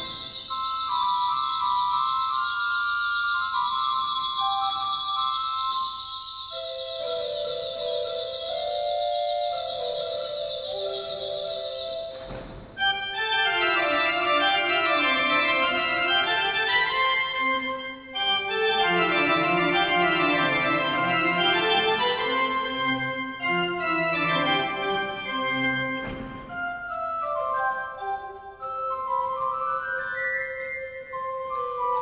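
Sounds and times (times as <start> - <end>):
pipe organ playing fast scales: 0.0 - 32.0.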